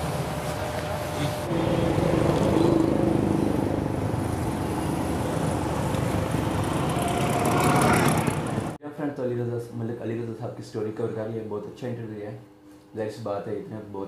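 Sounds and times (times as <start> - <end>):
motorcycle passing: 0.0 - 8.8
road traffic noise: 0.0 - 8.8.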